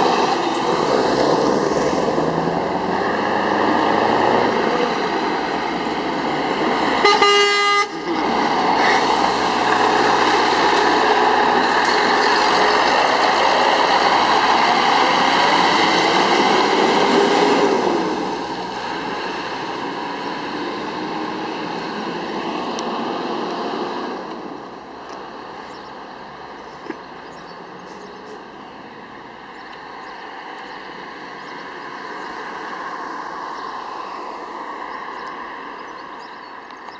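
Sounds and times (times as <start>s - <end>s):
truck diesel engine passing: 0.0s - 26.3s
truck horn blast: 7.0s - 8.1s.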